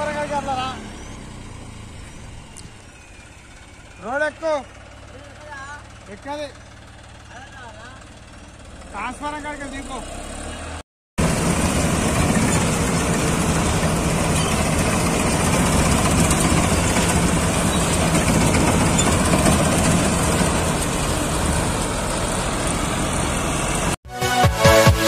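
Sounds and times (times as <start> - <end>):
combine harvester engine droning: 0.0 - 25.0
electronic music with sweeping tones: 24.1 - 25.0.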